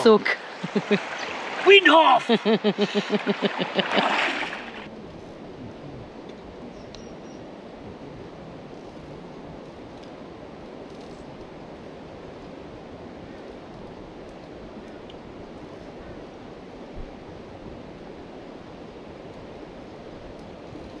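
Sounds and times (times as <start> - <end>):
river water rushing: 0.0 - 4.9.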